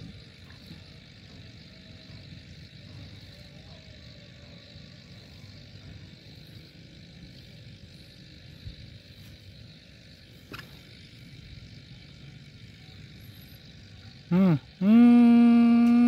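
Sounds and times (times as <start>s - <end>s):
high hiss: 0.0s - 16.0s.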